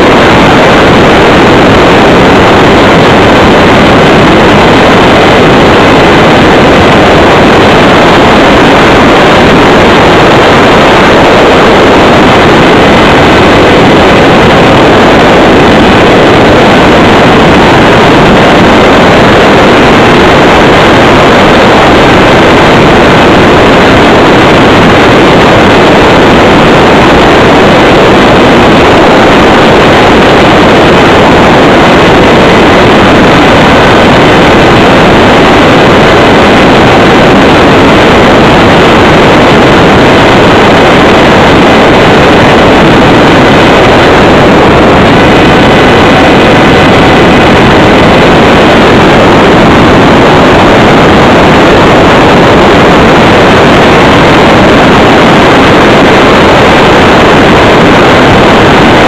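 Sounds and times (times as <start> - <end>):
distorted airflow and motor noise: 0.0 - 59.0
faint steady whine: 0.0 - 59.0.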